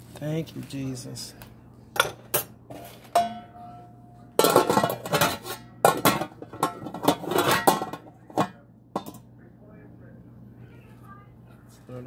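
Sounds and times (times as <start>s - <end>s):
roasting pan clanking and scraping: 2.0s - 9.2s
utensils clinking: 2.0s - 9.2s.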